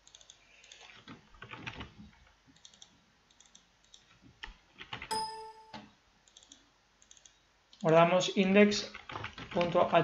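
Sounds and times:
faint mouse clicks: 0:06.2 - 0:07.9.

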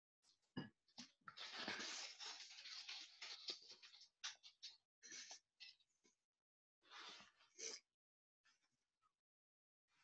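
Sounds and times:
plastic wrapper crinkling: 0:01.3 - 0:04.6.

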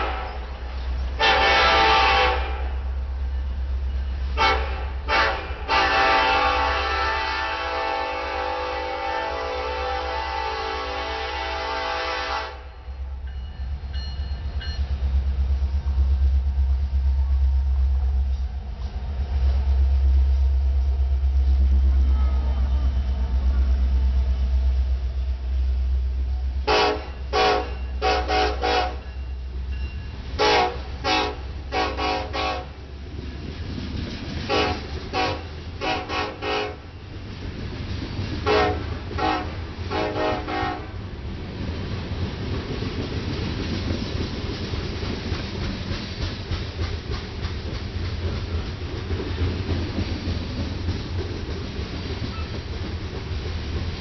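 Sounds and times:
locomotive air horn blasts: 0:00.0 - 0:00.5, 0:01.2 - 0:02.8, 0:04.3 - 0:12.8, 0:21.9 - 0:23.2, 0:26.6 - 0:29.1, 0:30.4 - 0:32.8, 0:34.5 - 0:36.9, 0:38.4 - 0:41.0
locomotive engine rumble: 0:00.0 - 0:54.0
train cars clickety-clack: 0:00.0 - 0:54.0.

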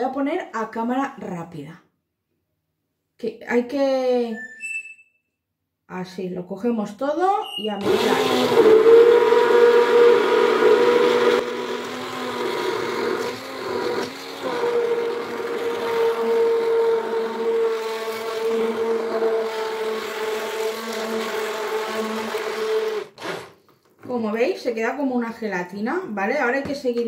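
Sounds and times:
stick blender motor whine: 0:07.8 - 0:23.6.

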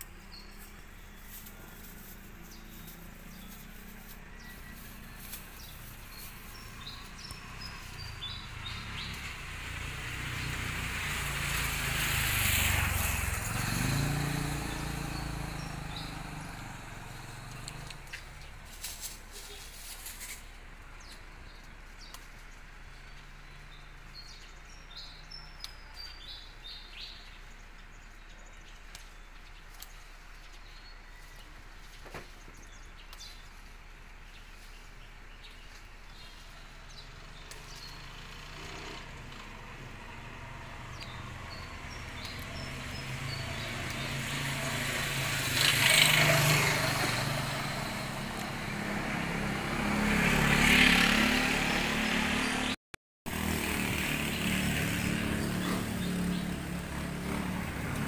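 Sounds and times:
birds chirping: 0:00.0 - 0:58.0
vehicle passing: 0:00.2 - 0:19.7, 0:33.6 - 0:58.0.

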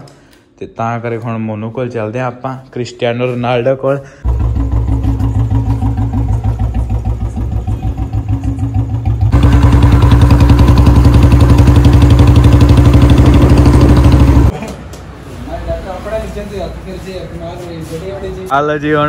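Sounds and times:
motorcycle engine running: 0:04.2 - 0:14.5.

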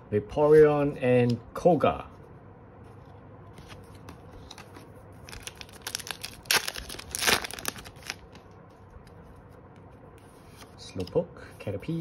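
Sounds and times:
foil pack crinkling and tearing: 0:05.3 - 0:08.4
loud rips of foil: 0:05.4 - 0:08.2.

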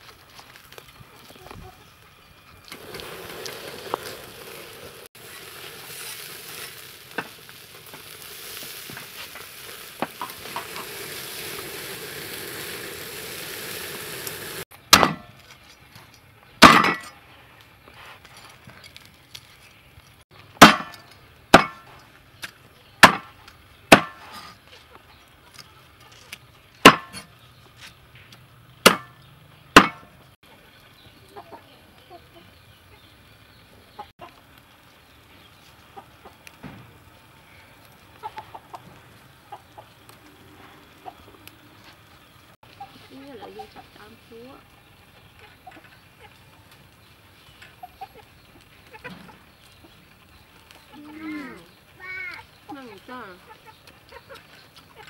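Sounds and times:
meat sizzling on charcoal grill: 0:00.0 - 0:55.0
cleaver chopping on wooden board: 0:23.0 - 0:23.3, 0:23.9 - 0:24.2, 0:28.9 - 0:29.1, 0:29.8 - 0:30.0.

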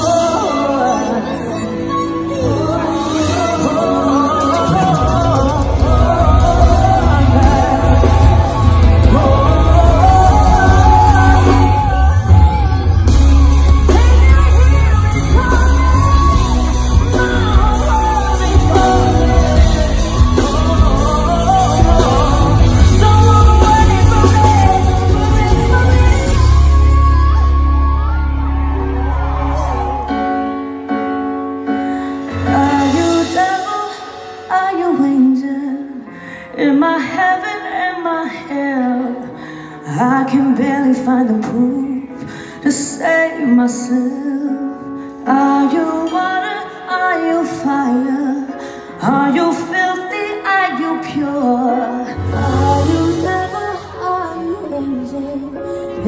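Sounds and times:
woman singing into microphone: 0:00.0 - 0:30.6, 0:31.6 - 0:56.0
bass-heavy band playing: 0:00.0 - 0:35.2.

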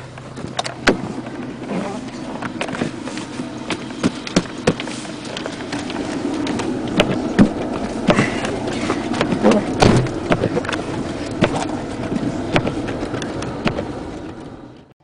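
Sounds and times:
rush of snow against car: 0:00.0 - 0:14.7
car engine under load: 0:00.0 - 0:15.0
snow thudding on car body: 0:02.5 - 0:11.8.

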